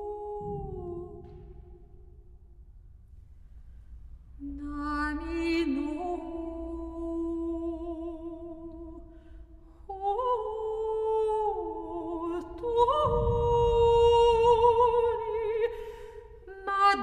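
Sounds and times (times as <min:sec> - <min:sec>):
woman singing unaccompanied: 0:00.0 - 0:01.8, 0:04.4 - 0:09.0, 0:09.9 - 0:17.0.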